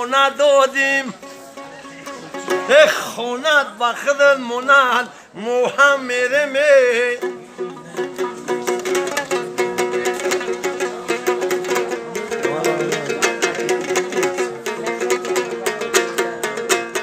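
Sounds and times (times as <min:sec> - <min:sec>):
lute strummed fast: 0:00.3 - 0:03.4, 0:06.9 - 0:17.0.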